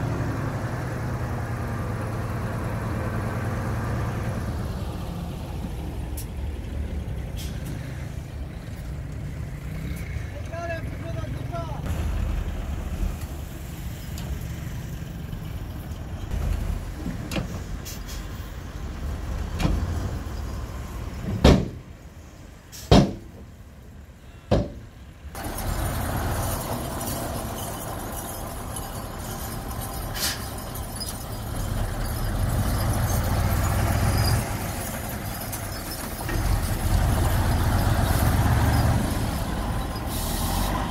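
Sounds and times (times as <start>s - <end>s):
truck diesel engine running: 0.0s - 8.8s, 25.4s - 40.9s.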